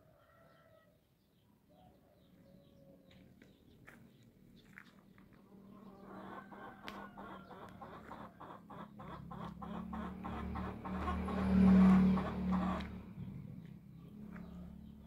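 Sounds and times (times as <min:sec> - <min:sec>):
chickens clucking: 0:04.6 - 0:15.0.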